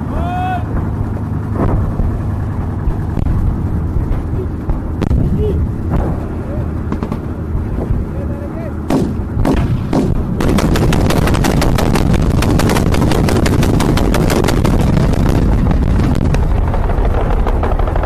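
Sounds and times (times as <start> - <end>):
steady low rumble: 0.0 - 18.0
machine-gun fire: 5.9 - 7.4, 8.9 - 17.9.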